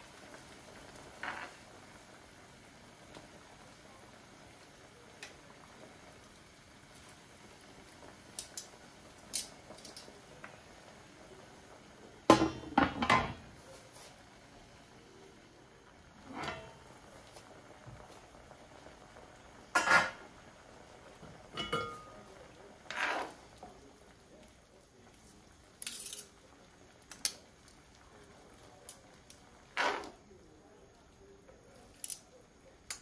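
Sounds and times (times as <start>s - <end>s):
cookware clattering: 12.3s - 13.4s, 16.3s - 16.9s, 19.7s - 20.2s, 21.5s - 22.3s, 25.8s - 26.3s.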